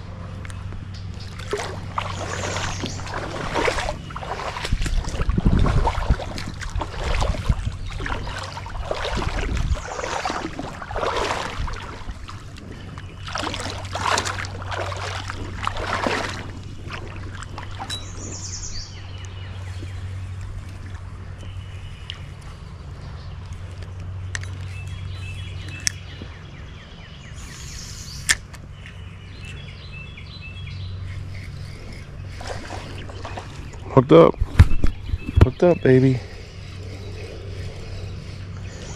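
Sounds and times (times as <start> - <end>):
steady low hum: 0.0 - 38.9
bird chirps: 0.9 - 4.6, 17.8 - 20.4, 24.5 - 38.9.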